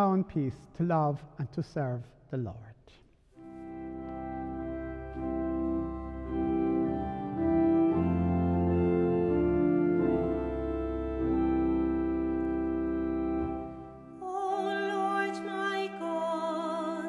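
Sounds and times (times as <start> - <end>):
organ sustained chords: 3.4 - 17.0.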